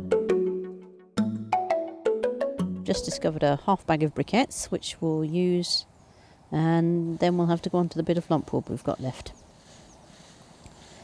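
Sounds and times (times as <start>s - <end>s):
melody of struck ringing notes: 0.0s - 3.3s.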